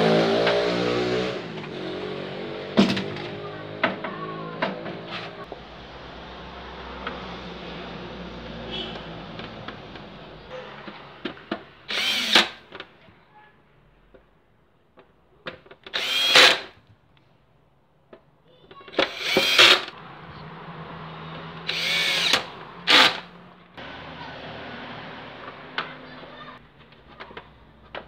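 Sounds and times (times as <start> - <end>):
power drill whining: 11.9 - 12.6, 15.9 - 16.8, 18.9 - 20.0, 21.6 - 23.3.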